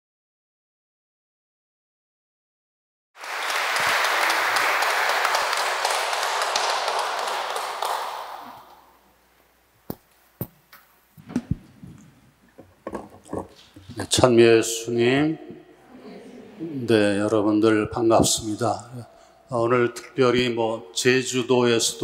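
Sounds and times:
audience applauding: 3.2s - 9.0s.

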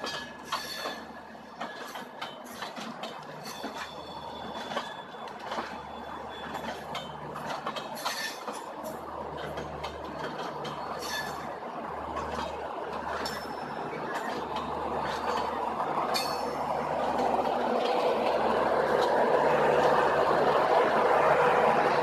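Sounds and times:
metallic wheel squeaks: 0.0s - 8.7s, 10.3s - 11.5s, 12.2s - 16.7s
clatter over rail joints: 0.0s - 22.0s
train wheels rumbling on rail: 0.0s - 22.0s.

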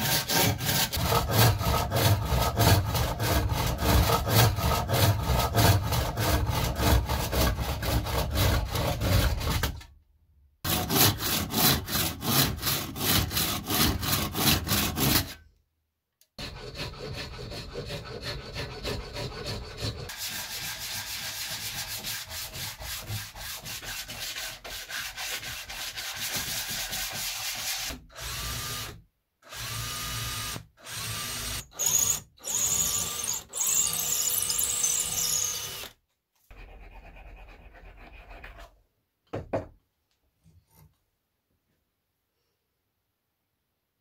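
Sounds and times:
hand sanding strokes: 16.5s - 27.9s
cordless drill boring into wood: 28.2s - 35.9s.

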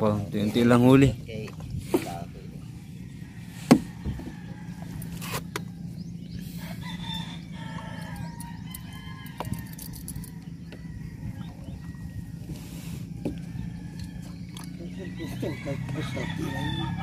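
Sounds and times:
low hum: 0.0s - 17.0s
rooster crowing: 3.2s - 5.2s, 6.6s - 12.4s, 15.1s - 17.0s.

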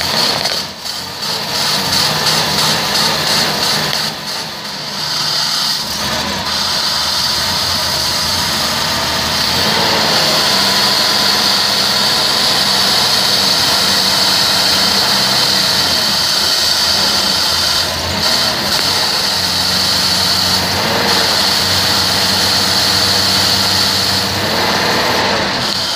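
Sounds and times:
car engine idling: 0.0s - 25.9s.

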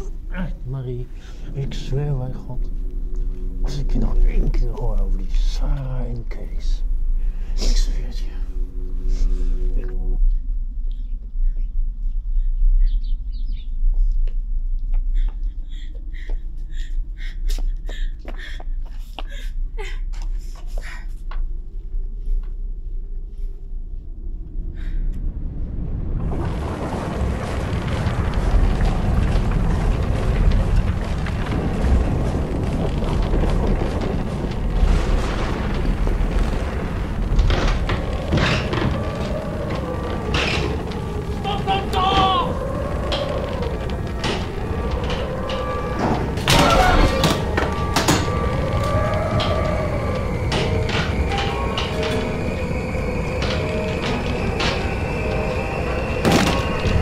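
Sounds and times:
wind rumble on microphone: 0.0s - 57.0s
small birds chirping: 10.9s - 14.3s.

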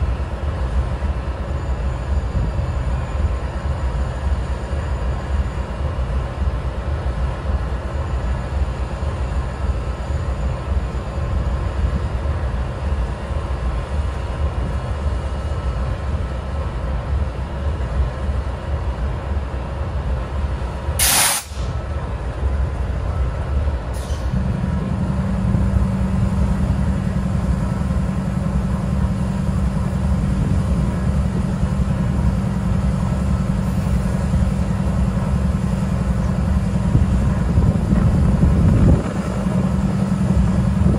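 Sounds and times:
locomotive diesel idling: 0.0s - 40.9s
air hiss: 21.0s - 21.7s.

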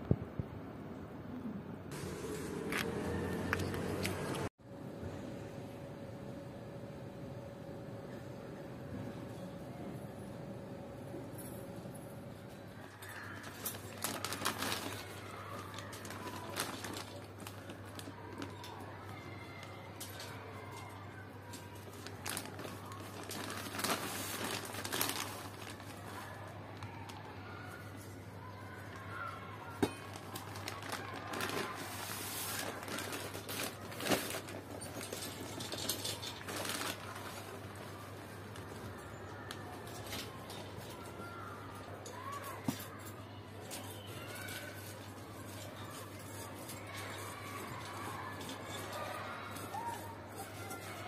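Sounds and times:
plastic bag crinkling: 12.8s - 51.0s.

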